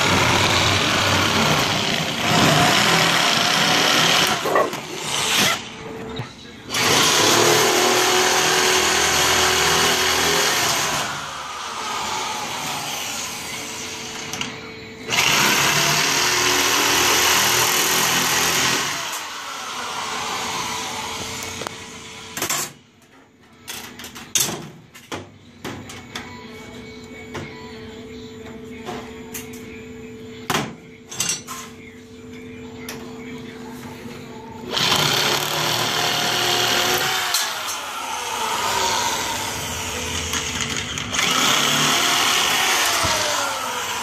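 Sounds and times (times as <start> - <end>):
power shear cutting sheet metal: 0.0 - 5.7, 6.7 - 13.6, 15.1 - 21.4, 34.7 - 44.0.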